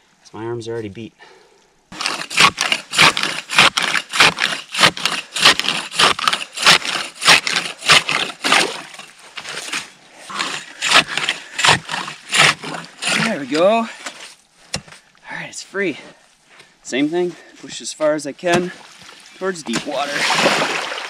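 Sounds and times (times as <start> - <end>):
ice saw rasping through ice: 2.0 - 14.4.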